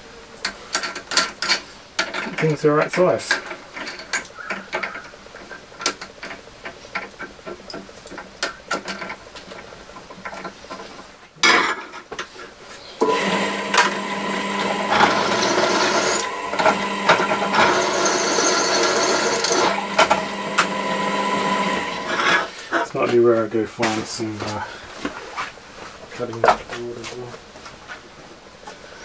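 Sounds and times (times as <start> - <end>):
tools clicking and knocking: 0.4 - 12.3
drill press motor whine: 13.0 - 22.5.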